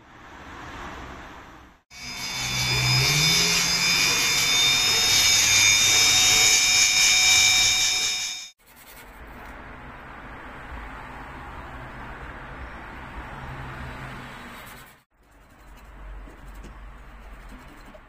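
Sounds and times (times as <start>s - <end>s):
rotary tool high-pitched whine: 1.9s - 8.6s
stone rubbing on sandpaper: 8.0s - 9.4s, 14.5s - 18.0s.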